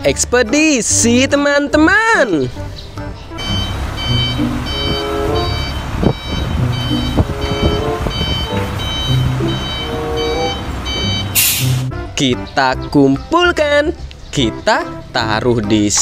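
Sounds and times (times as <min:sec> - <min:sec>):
truck engine rumbling: 0:02.5 - 0:12.9
truck reversing alarm beeping: 0:03.3 - 0:11.9.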